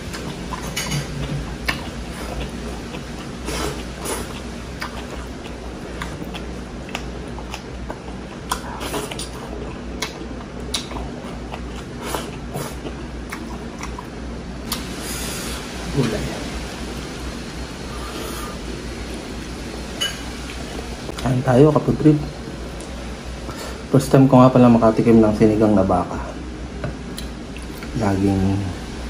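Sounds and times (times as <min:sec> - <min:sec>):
steady low hum: 0:00.0 - 0:29.0
wet chewing and lip smacks: 0:00.1 - 0:14.9.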